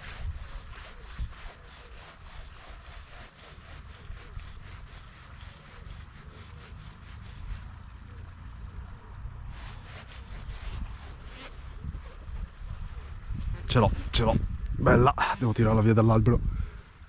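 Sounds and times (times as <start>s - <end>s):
fishing line rubbing through guides: 9.5s - 14.4s.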